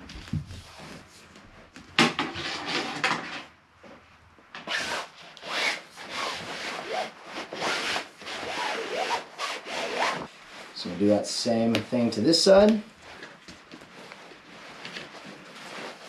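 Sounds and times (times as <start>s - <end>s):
pole scraping through fabric sleeve: 4.7s - 16.0s.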